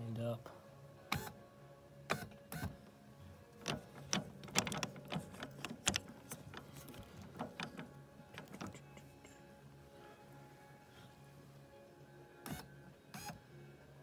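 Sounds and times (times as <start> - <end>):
low steady hum: 0.0 - 14.0
metal clicks and knocks: 3.6 - 9.1.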